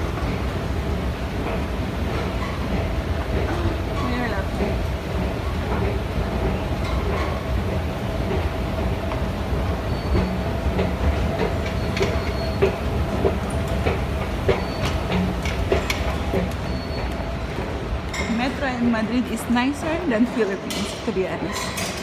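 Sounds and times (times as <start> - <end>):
clicks and clacks: 10.1 - 18.5.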